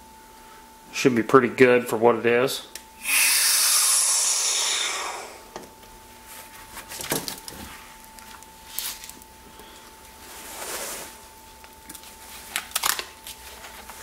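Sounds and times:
air hissing: 3.0s - 5.5s.

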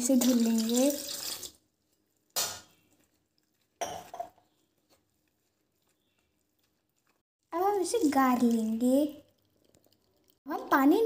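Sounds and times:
water splashing in steel bowl: 0.0s - 1.6s, 7.6s - 10.4s.

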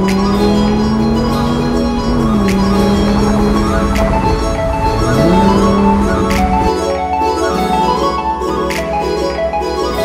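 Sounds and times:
music with held gliding tones: 0.0s - 10.0s.

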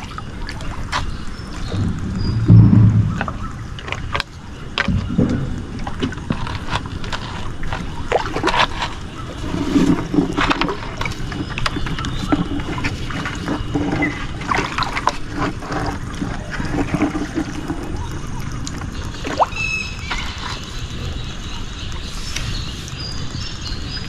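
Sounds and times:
water splashing and dripping: 0.0s - 24.0s
gear knocking against boat hull: 1.6s - 6.6s.

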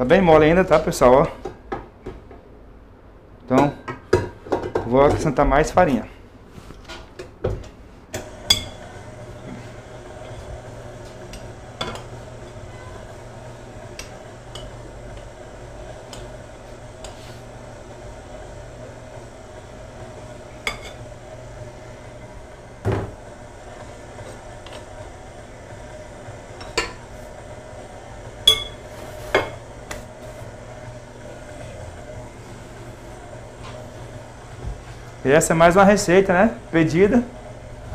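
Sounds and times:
stand mixer kneading dough: 8.2s - 37.9s.

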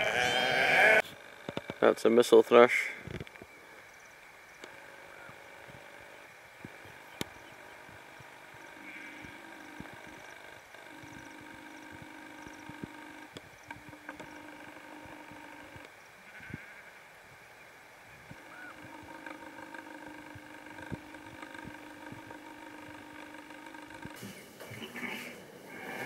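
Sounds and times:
snipe drumming hum: 6.6s - 15.9s, 18.3s - 25.0s.

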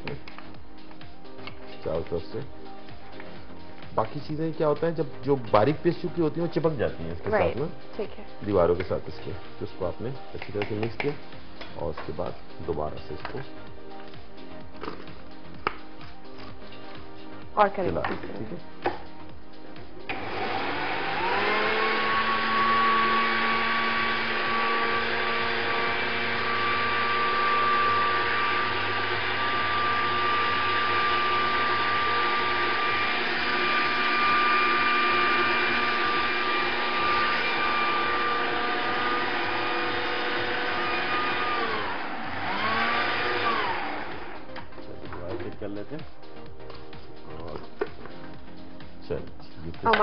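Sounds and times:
electric spice grinder whining: 20.0s - 45.2s.

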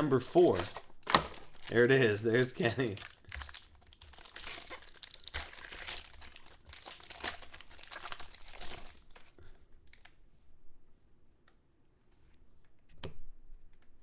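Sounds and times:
foil wrapper tearing and crinkling: 0.6s - 10.1s.

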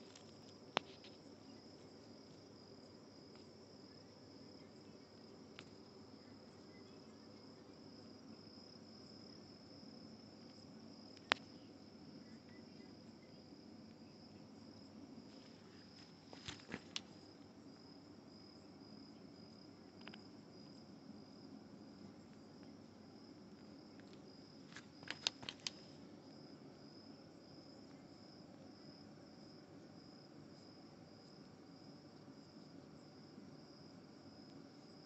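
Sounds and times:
crickets trilling: 0.0s - 35.0s
sharp clicks: 25.0s - 25.8s.

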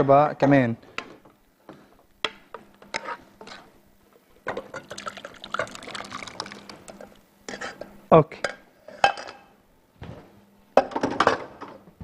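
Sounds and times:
thick soup pouring and splashing: 4.8s - 7.1s.

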